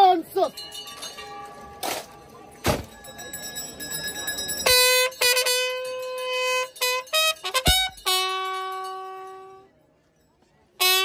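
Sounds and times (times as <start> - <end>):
military bugle call: 4.7 - 9.6, 10.8 - 11.0.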